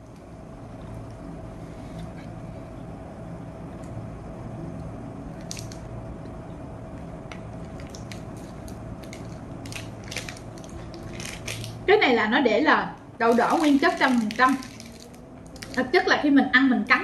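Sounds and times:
faint hum: 0.0s - 17.0s
crisp wrapper rustles: 7.7s - 11.8s, 13.3s - 15.9s
plastic wrapper crinkling: 7.7s - 11.8s, 13.3s - 16.0s.

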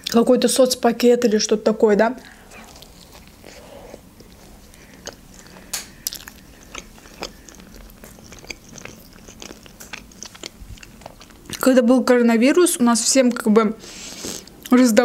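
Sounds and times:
woman chewing food: 2.2s - 11.7s.

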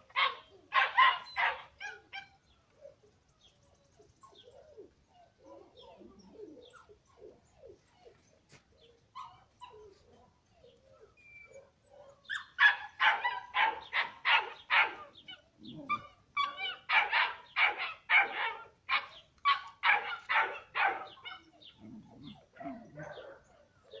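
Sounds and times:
dog barking: 0.2s - 2.3s, 11.0s - 24.0s.

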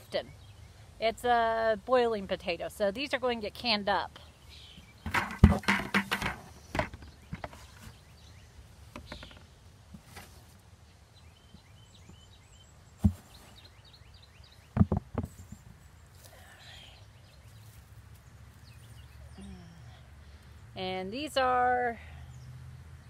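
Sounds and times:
birds chirping: 0.0s - 1.4s, 2.6s - 9.8s, 10.7s - 23.0s
potatoes knocking and thumping: 5.0s - 7.6s, 14.7s - 15.4s.

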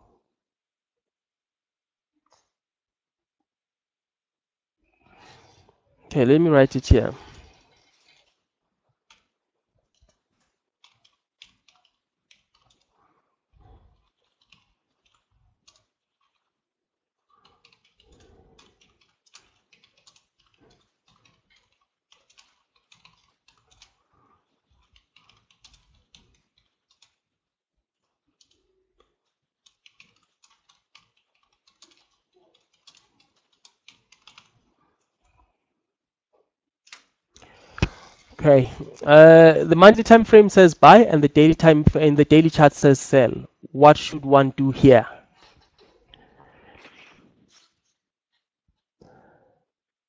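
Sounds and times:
keyboard typing: 9.9s - 13.0s, 14.0s - 16.5s, 17.4s - 24.0s, 24.8s - 27.2s, 28.4s - 34.7s.

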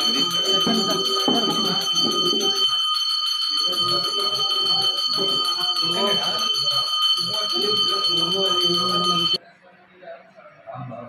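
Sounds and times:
temple bell ringing: 0.0s - 9.4s
people talking: 0.0s - 11.0s.

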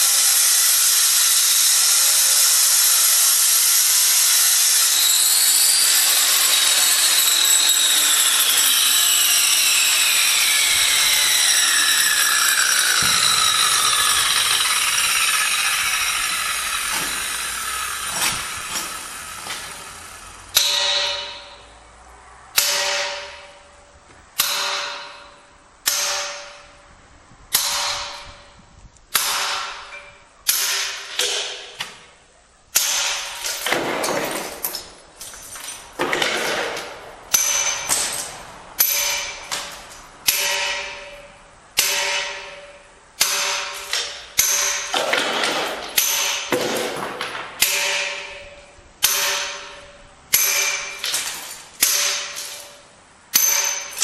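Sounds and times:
hammer striking chisel on stone: 20.5s - 21.7s, 35.6s - 52.8s, 53.4s - 54.0s.

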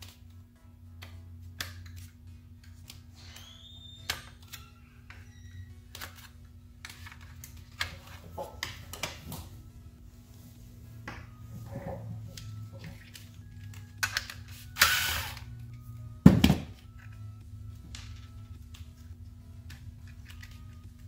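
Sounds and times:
steady low hum: 4.6s - 21.0s.

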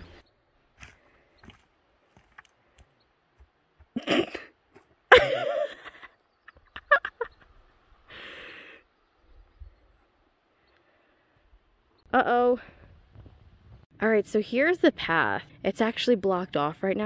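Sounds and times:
person breathing out: 8.1s - 8.8s.

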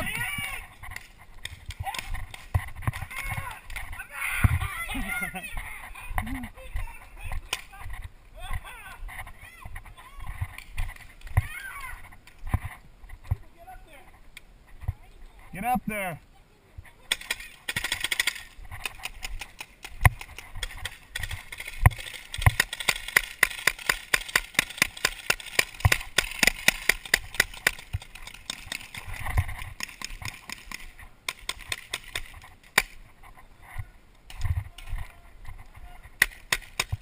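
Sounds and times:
paintball markers firing: 17.1s - 33.0s, 36.2s - 37.0s.

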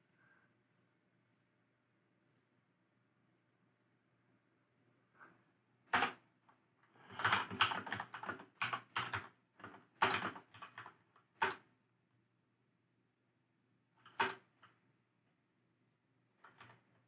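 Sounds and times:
laptop keyboard typing: 5.9s - 6.2s, 7.0s - 11.6s, 14.0s - 14.8s, 16.4s - 16.8s.

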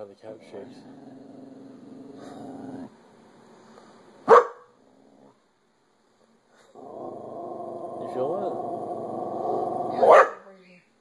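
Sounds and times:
dog growling: 0.2s - 3.0s, 4.8s - 5.4s, 6.7s - 10.1s
dog barking: 4.2s - 4.7s, 10.0s - 10.5s.

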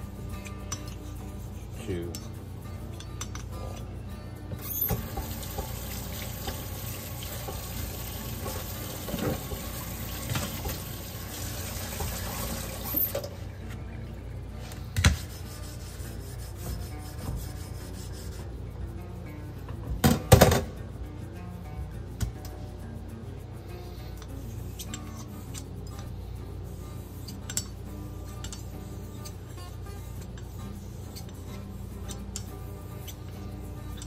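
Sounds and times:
tap water running: 4.9s - 13.4s
stone rubbing on whetstone: 15.1s - 18.5s, 24.2s - 26.1s, 26.7s - 33.2s.

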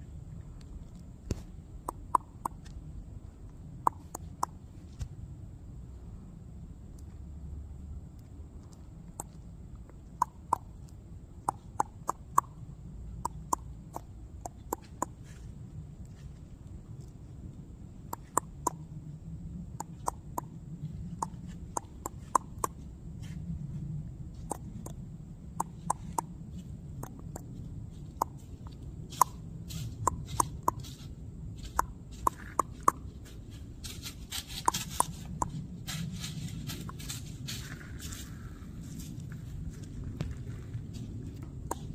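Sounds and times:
low outdoor rumble: 0.0s - 41.9s
sharp irregular clicks: 0.6s - 2.8s, 3.4s - 4.6s, 8.1s - 15.4s, 18.0s - 18.9s, 19.7s - 22.8s, 24.4s - 38.2s, 41.4s - 41.9s
rustling in dry leaves: 33.1s - 41.4s.

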